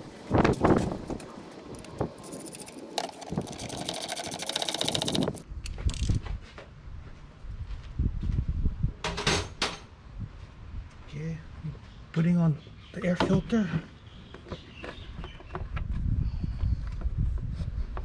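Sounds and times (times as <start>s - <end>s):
tools and plastic parts clicking: 1.2s - 6.2s
air ratchet rattling: 1.8s - 6.0s.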